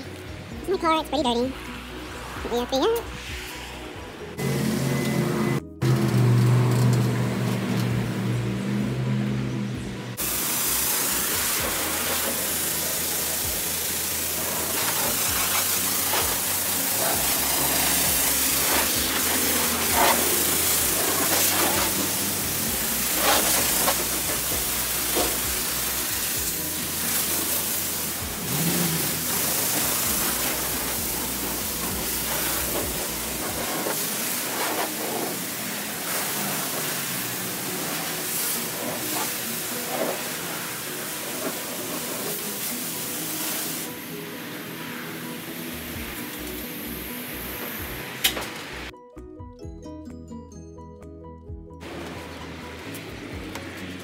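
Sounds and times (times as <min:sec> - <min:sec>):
pressure washer spray hissing: 0:10.2 - 0:48.9.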